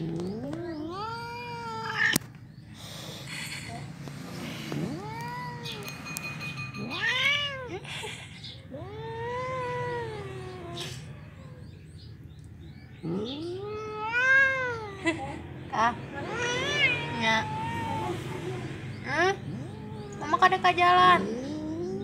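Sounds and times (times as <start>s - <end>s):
cat meowing: 0.3s - 2.2s, 4.8s - 5.9s, 6.8s - 7.8s, 13.4s - 15.0s, 16.2s - 18.7s, 19.4s - 20.6s.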